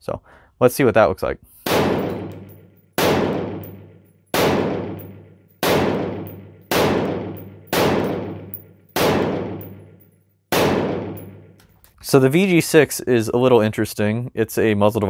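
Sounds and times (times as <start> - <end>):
rifle shots echoing: 1.7 - 11.6.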